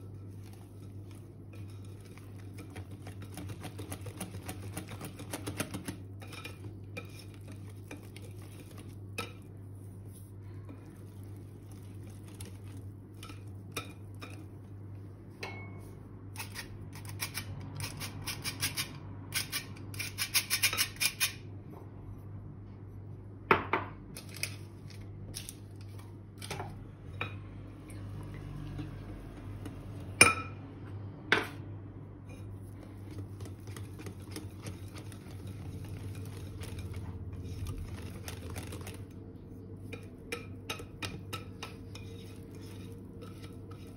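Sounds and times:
whisk scraping glass bowl: 0.0s - 14.7s, 32.3s - 39.2s, 39.8s - 43.9s.

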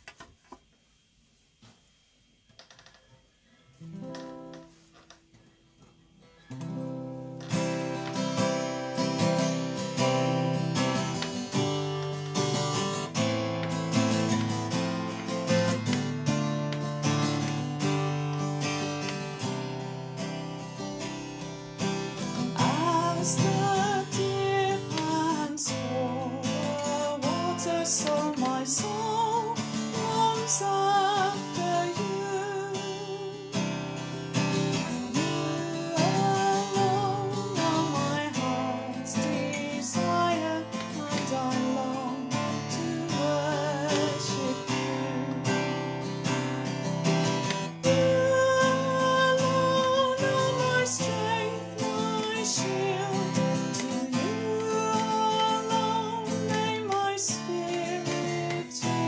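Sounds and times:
acoustic guitar strumming: 3.7s - 59.0s
woman singing a hymn: 22.6s - 33.5s, 35.1s - 45.6s, 47.8s - 59.0s.

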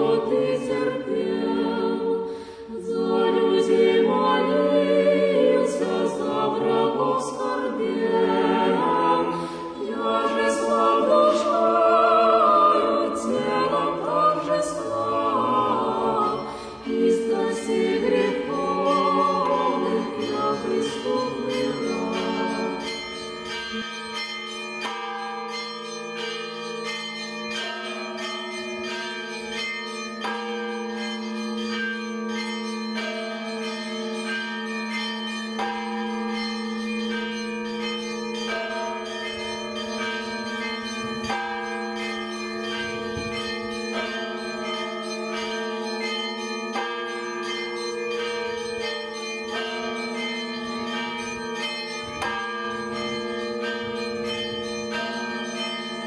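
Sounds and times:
church bells ringing: 0.0s - 56.0s
low bell humming: 16.3s - 56.0s.

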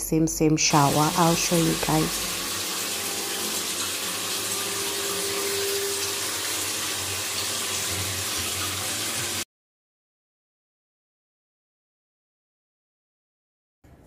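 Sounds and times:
shower water splashing: 0.6s - 9.5s.

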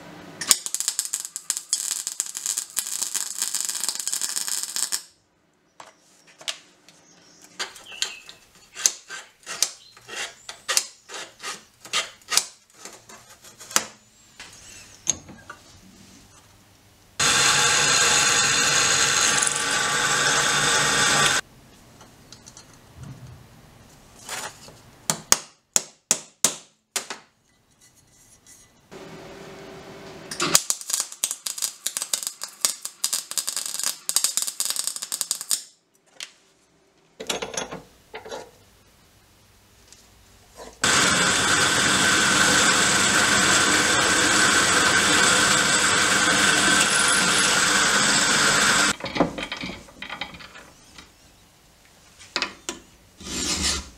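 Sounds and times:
welder crackling: 0.4s - 5.2s, 17.2s - 21.4s, 30.3s - 35.8s, 40.8s - 49.0s
drill press drilling steel: 17.2s - 21.4s, 40.8s - 49.0s.

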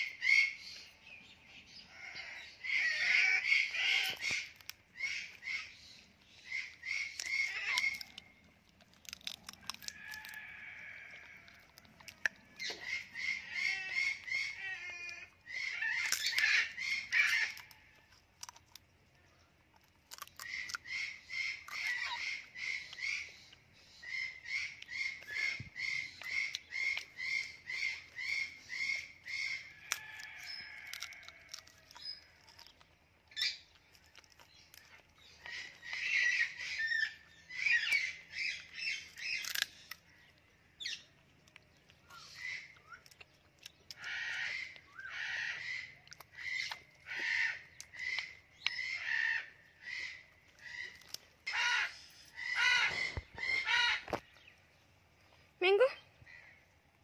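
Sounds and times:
parrot calling harshly: 2.0s - 5.8s, 6.4s - 8.3s, 12.8s - 17.7s, 44.0s - 54.1s.

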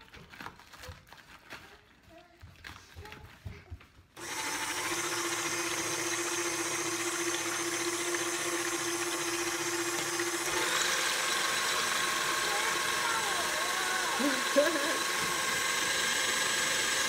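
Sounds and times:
stand mixer whirring: 4.2s - 17.0s.

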